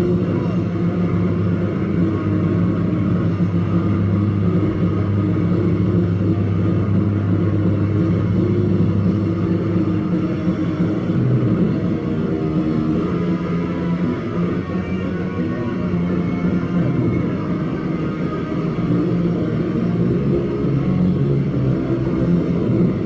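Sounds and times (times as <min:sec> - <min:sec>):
punk band playing live: 0:00.0 - 0:23.0.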